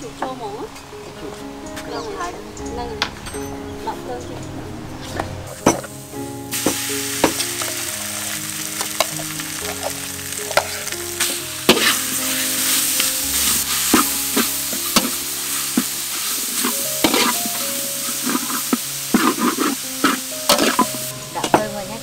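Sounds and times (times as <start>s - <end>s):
food sizzling in a wok: 5.6s - 22.0s
spatula scraping and knocking pan: 6.6s - 21.8s.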